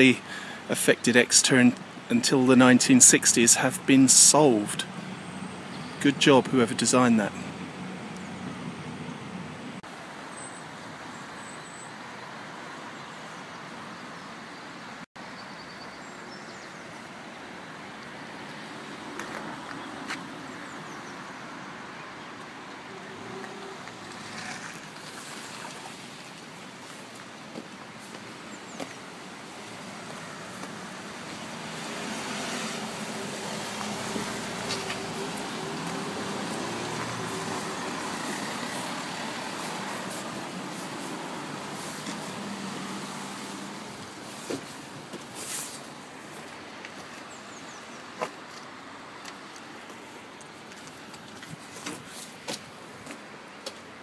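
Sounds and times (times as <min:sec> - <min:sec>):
steady outdoor hiss: 0:00.0 - 0:54.0
car engine approaching: 0:03.5 - 0:09.9, 0:17.6 - 0:26.4, 0:27.5 - 0:45.1
river rushing: 0:16.9 - 0:51.7.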